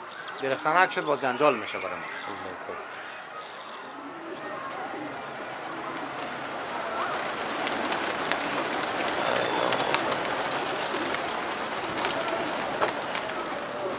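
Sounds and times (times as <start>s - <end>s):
pigeon wingbeats fluttering: 4.0s - 13.9s
sharp wing claps: 5.9s - 13.9s.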